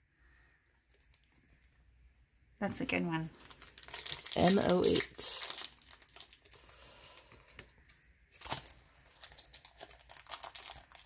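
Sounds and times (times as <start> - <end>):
wrapper crinkling and tearing: 3.3 - 11.0
cards rustling and snapping: 3.4 - 11.0.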